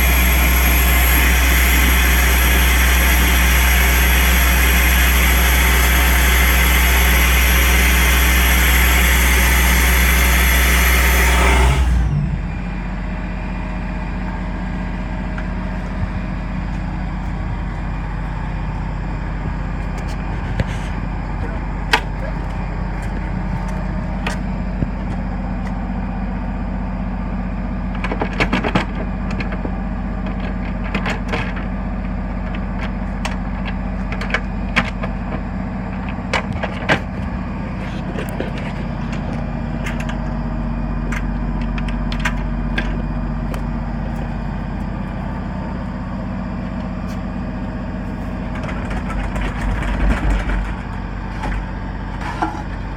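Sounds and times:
machine hum: 0.0 - 52.9.

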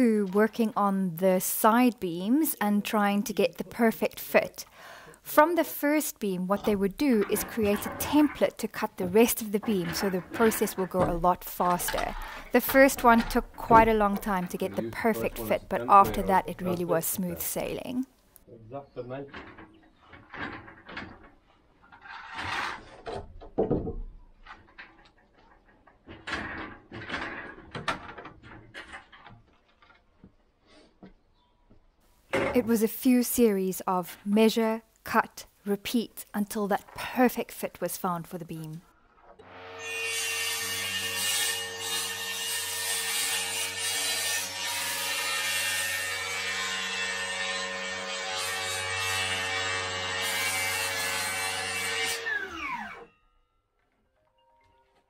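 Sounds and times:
power saw cutting wood: 6.5 - 17.8, 39.4 - 53.1
knocks and thuds of timber: 7.6 - 14.6, 22.6 - 24.9.

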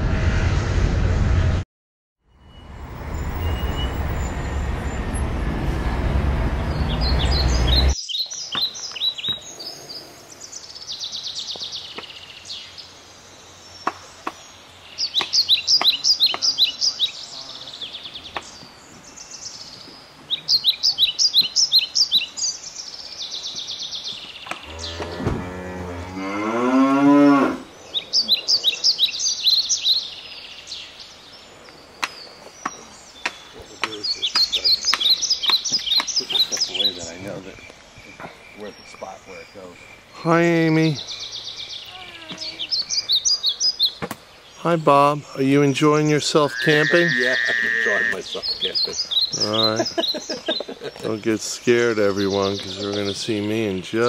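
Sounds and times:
rushing whoosh: 0.0 - 1.6
jays calling harshly: 46.1 - 50.1
long low wavering call: 46.3 - 48.3.

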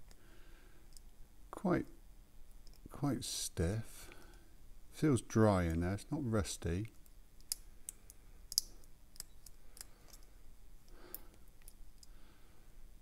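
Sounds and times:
lock pick clicking in padlock: 8.5 - 10.3.

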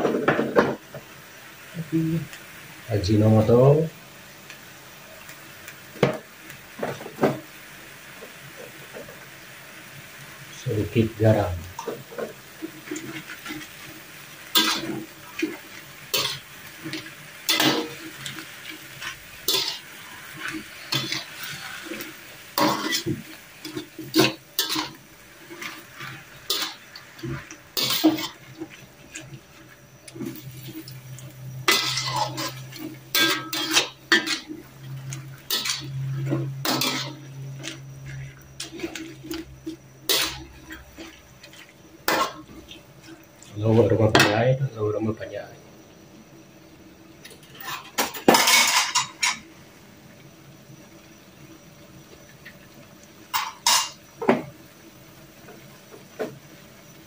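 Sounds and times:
spatula scraping and knocking a wok: 11.8 - 13.9, 14.5 - 43.1.

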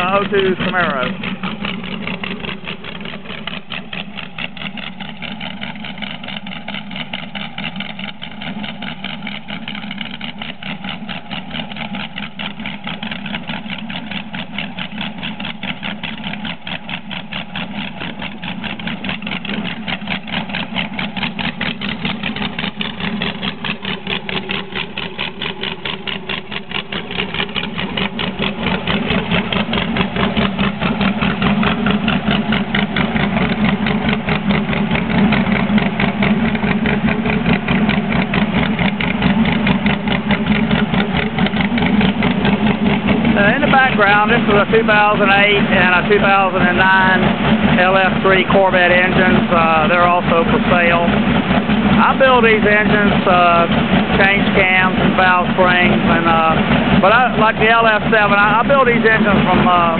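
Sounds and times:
engine idling: 0.0 - 59.9.

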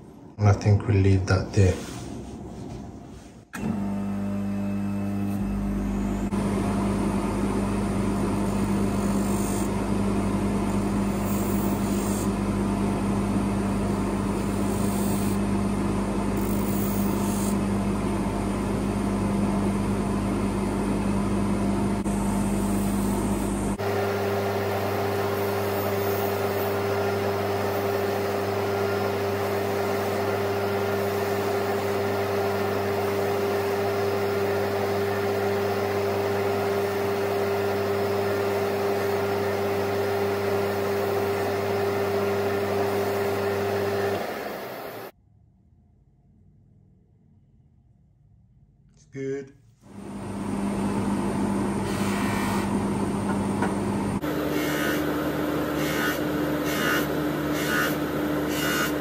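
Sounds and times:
polishing motor humming: 3.6 - 12.7, 13.8 - 18.0, 21.8 - 45.1, 50.0 - 59.0.

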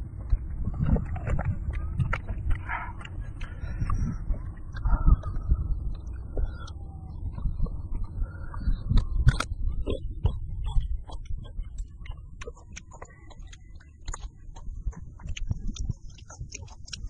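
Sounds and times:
chewing meat: 0.0 - 17.0
low rumble: 0.0 - 17.0
wet mouth clicks and smacks: 8.9 - 17.0.

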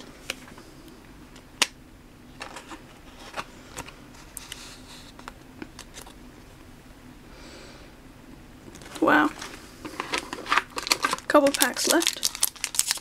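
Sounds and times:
cards rustling: 8.7 - 13.0.

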